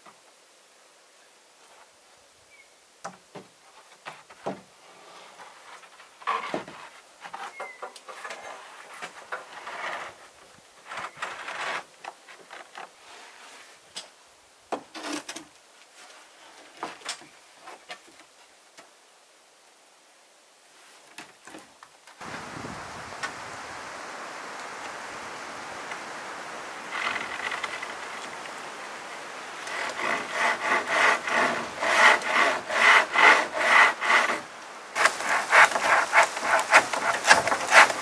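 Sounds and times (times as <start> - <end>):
wooden board knocking and scraping: 35.0 - 38.0.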